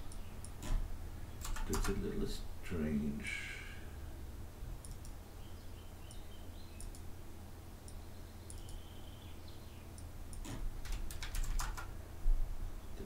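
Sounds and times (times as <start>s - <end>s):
faint low hum: 0.0s - 13.0s
computer mouse clicking: 1.4s - 2.0s, 4.8s - 5.2s, 6.8s - 7.1s, 7.8s - 8.8s, 9.9s - 11.9s.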